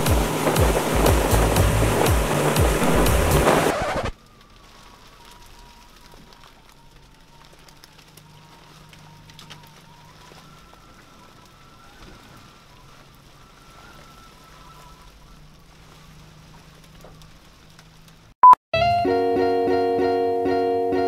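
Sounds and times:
light rain on boat windscreen: 0:00.0 - 0:18.4
short loud beep: 0:18.4 - 0:19.1
acoustic guitar music: 0:18.7 - 0:21.0.

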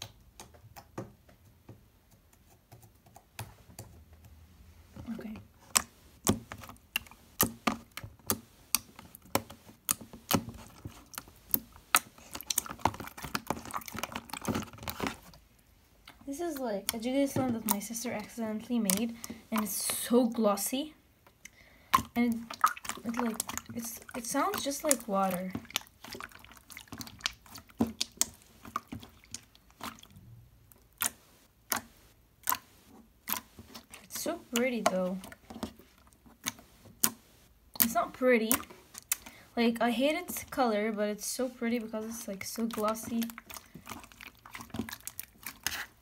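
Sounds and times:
slime squeezed with wet pops: 0:05.6 - 0:15.4, 0:21.4 - 0:39.4, 0:42.5 - 0:46.0.

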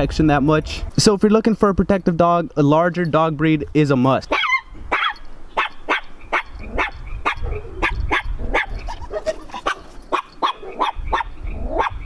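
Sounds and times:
dog barking: 0:04.3 - 0:12.0.

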